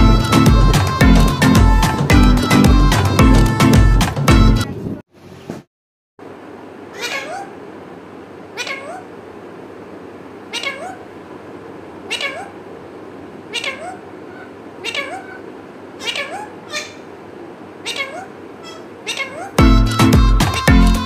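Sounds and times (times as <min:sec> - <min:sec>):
parakeet cries rising in pitch: 0:06.9 - 0:07.6, 0:08.5 - 0:09.2, 0:10.5 - 0:11.1, 0:12.1 - 0:12.6, 0:13.5 - 0:17.2, 0:17.8 - 0:21.0.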